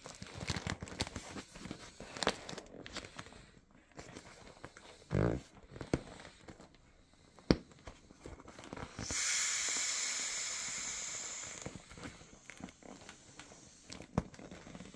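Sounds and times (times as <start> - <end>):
vinyl crinkling: 0.0 - 9.0, 11.6 - 14.9
air hissing from a valve: 8.9 - 12.4, 13.1 - 14.0.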